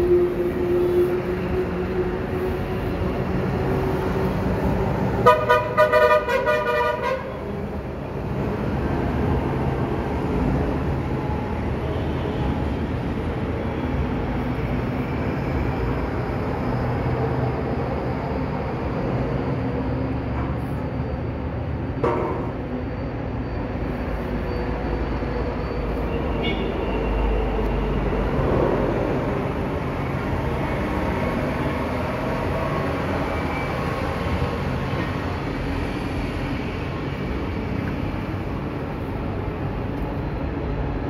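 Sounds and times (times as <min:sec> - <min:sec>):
rumble of passing vehicles: 0:00.0 - 0:41.0
car horn honking: 0:05.2 - 0:07.4.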